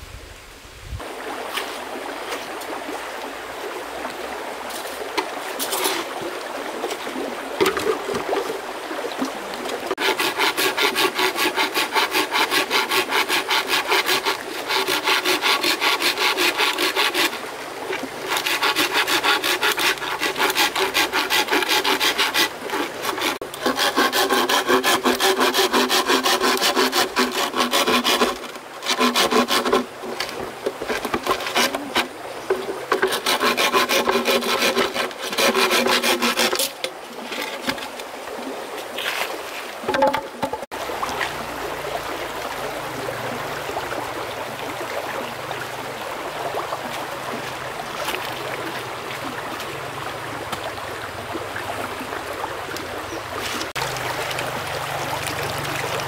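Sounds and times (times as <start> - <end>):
hand tool rasping wood: 9.9 - 17.4, 18.2 - 38.0.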